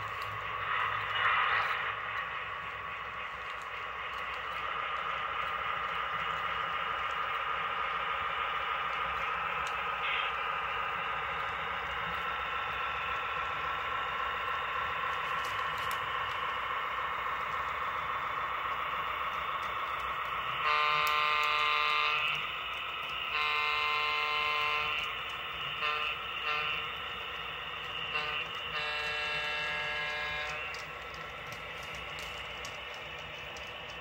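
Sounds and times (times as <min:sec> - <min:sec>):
model train engine sound: 0:00.0 - 0:34.0
model train horn: 0:20.6 - 0:22.5, 0:23.1 - 0:27.0, 0:28.0 - 0:30.9.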